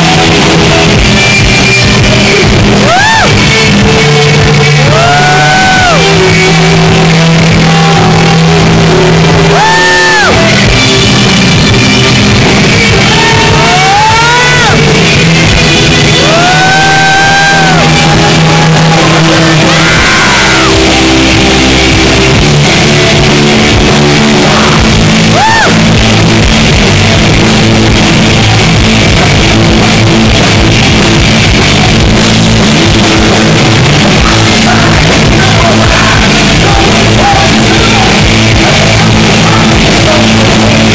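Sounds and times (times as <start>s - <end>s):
distorted electric guitars: 0.0s - 40.9s
shouted vocals: 4.6s - 10.7s, 12.8s - 15.0s, 16.0s - 21.1s, 23.9s - 26.0s.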